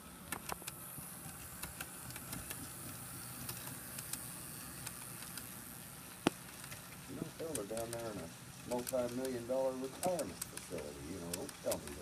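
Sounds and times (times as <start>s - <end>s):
model train locomotive hum: 0.0s - 12.0s.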